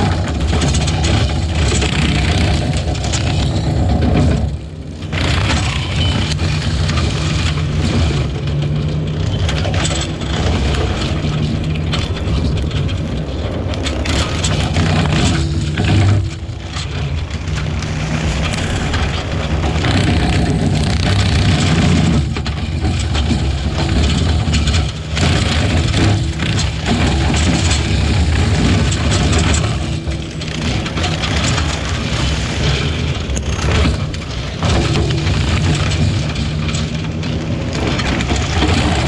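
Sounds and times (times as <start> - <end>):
diesel engine running under load: 0.0 - 39.0
brush cutter shredding brush: 13.9 - 33.4.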